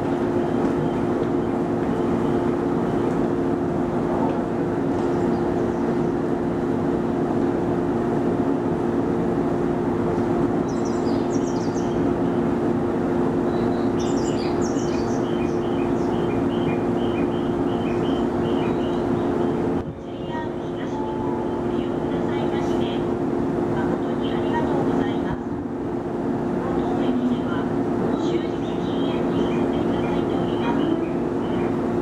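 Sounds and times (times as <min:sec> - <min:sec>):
electric train equipment humming: 0:00.0 - 0:32.0
birds chirping: 0:10.6 - 0:12.5, 0:13.4 - 0:19.8, 0:28.3 - 0:31.9.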